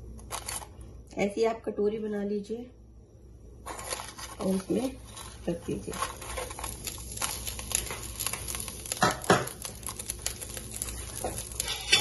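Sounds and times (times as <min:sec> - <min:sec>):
aluminium foil crinkling: 0:00.1 - 0:00.9, 0:03.6 - 0:12.0.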